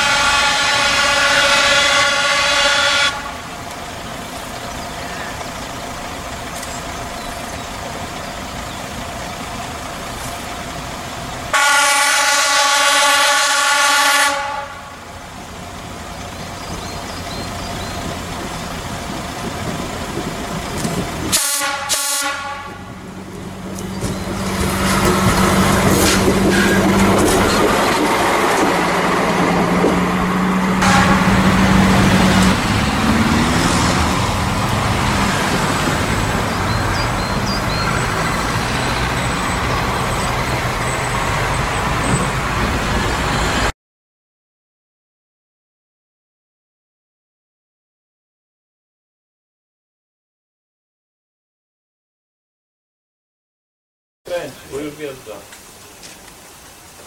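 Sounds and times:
train horn blasts: 0:00.0 - 0:03.5, 0:11.5 - 0:15.1, 0:21.3 - 0:23.0, 0:30.8 - 0:32.6
diesel engine and wheels passing: 0:00.0 - 0:43.7.

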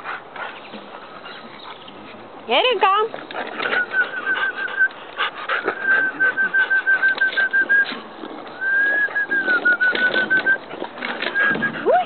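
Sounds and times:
puppy whining: 0:03.2 - 0:08.0.

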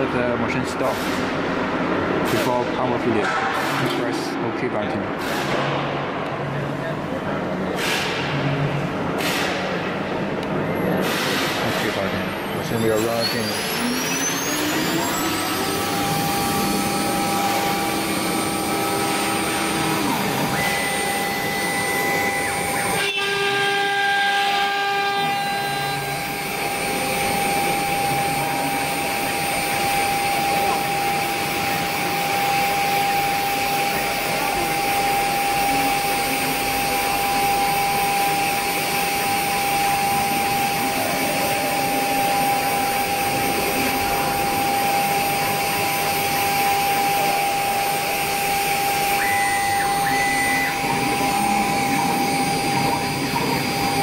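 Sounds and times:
cnc router spindle whining: 0:11.6 - 0:54.0.

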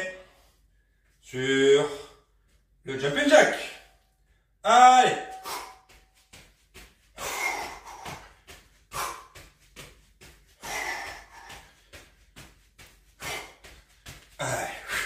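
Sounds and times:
man breathing hard: 0:05.3 - 0:06.0, 0:07.1 - 0:15.0.

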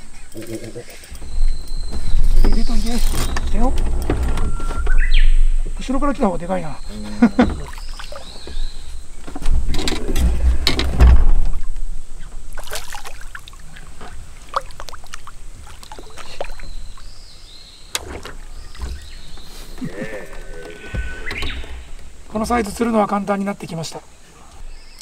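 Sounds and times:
fish splashing in water: 0:07.5 - 0:08.8, 0:12.5 - 0:17.2.

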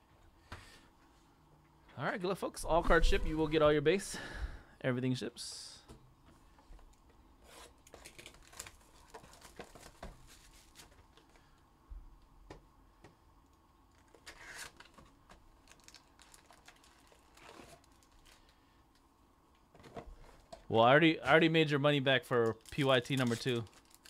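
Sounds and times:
plastic wrap crinkling and tearing: 0:07.6 - 0:11.0, 0:13.9 - 0:18.6, 0:22.4 - 0:24.0.

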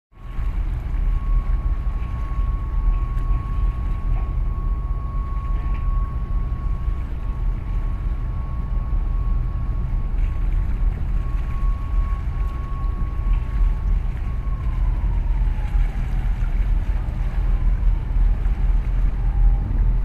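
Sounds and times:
wind buffeting microphone: 0:00.3 - 0:20.0
faint steady high tone: 0:01.0 - 0:16.2.

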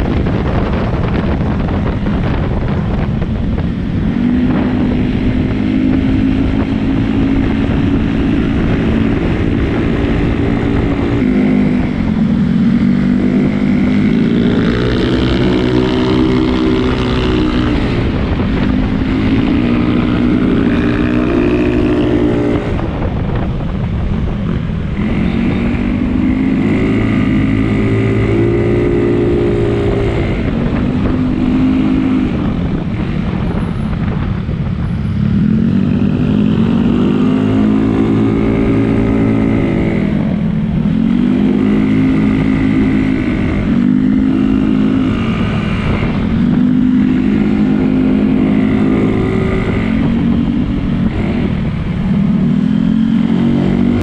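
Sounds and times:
scooter engine revving: 0:35.2 - 0:54.0.

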